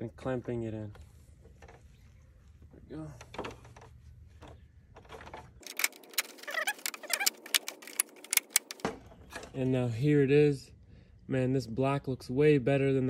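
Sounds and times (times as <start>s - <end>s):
plastic creaking: 3.3s - 8.9s
plastic clips clicking and snapping: 5.6s - 8.8s.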